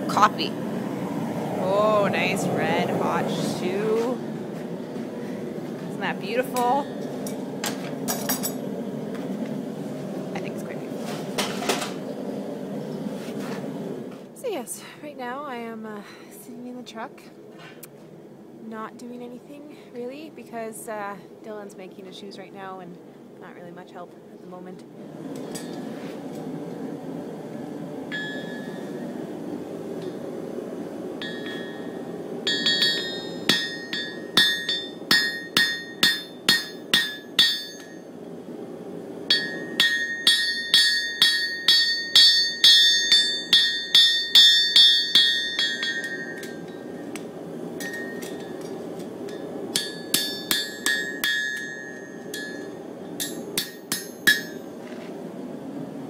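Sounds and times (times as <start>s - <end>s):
low hum: 22.8s - 56.0s
hammer striking horseshoe on anvil: 31.2s - 31.9s, 32.5s - 38.0s, 39.3s - 47.2s, 47.8s - 48.7s, 49.3s - 54.6s.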